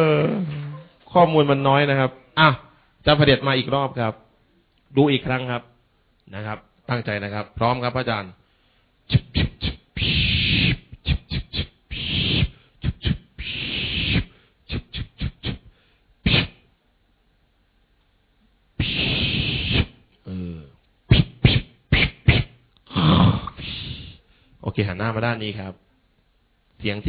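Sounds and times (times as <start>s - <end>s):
mouth clicks and smacks: 9.1s - 16.6s, 18.8s - 20.2s, 20.8s - 24.2s
mouth hissing blasts: 9.1s - 16.6s, 18.8s - 20.0s, 21.1s - 24.2s.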